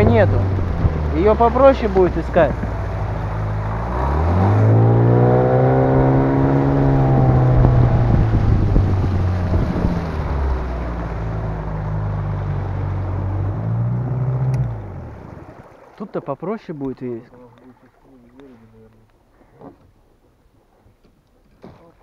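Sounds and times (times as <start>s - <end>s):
outboard motor running: 0.0s - 16.2s.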